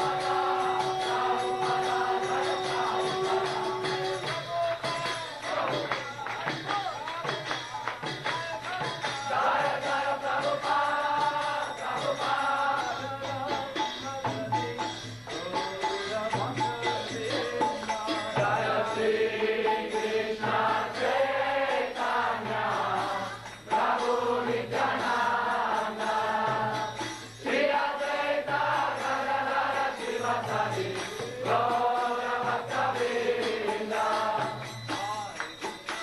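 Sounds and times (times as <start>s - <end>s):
hand percussion: 0.0s - 36.0s
voices chanting: 17.2s - 35.2s.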